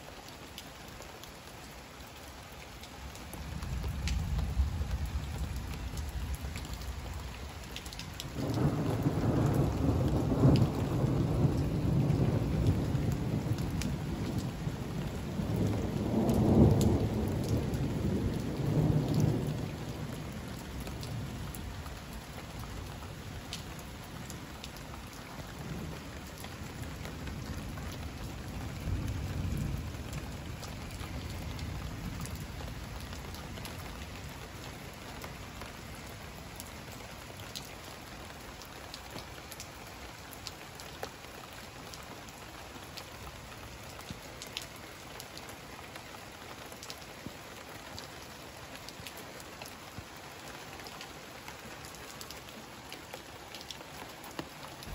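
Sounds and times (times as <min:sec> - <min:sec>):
heavy rain: 0:00.0 - 0:54.9
raindrops ticking close by: 0:00.0 - 0:54.9
thunder rumbling: 0:08.3 - 0:23.9, 0:25.5 - 0:34.3.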